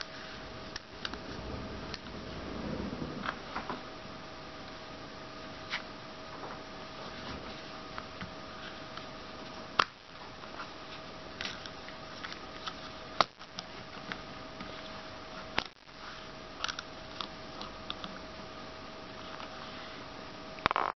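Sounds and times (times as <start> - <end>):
faint hum: 0.0 - 20.9.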